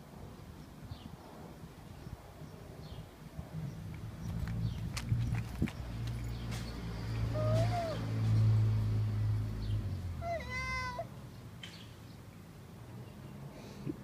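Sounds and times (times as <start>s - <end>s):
high-pitched cries: 7.3s - 8.0s, 10.2s - 11.1s.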